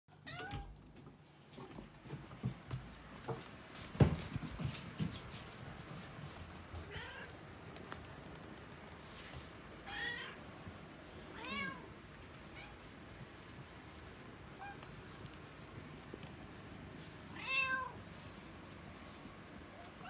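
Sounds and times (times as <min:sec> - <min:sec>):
cat meowing: 0:00.2 - 0:00.7, 0:06.9 - 0:07.4, 0:09.8 - 0:10.4, 0:11.3 - 0:11.9, 0:14.5 - 0:14.8, 0:17.3 - 0:18.0.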